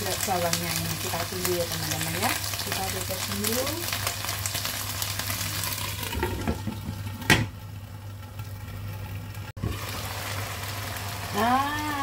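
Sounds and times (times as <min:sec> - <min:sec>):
vegetables simmering and sizzling: 0:00.0 - 0:12.0.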